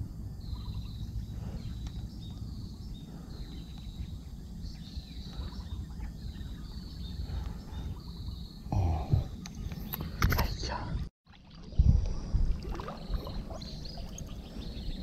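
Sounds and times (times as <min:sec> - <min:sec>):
low outdoor rumble: 0:00.0 - 0:11.1.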